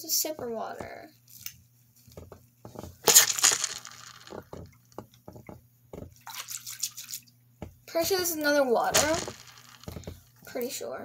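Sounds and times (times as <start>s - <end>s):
water balloon squishing: 4.3s - 7.8s.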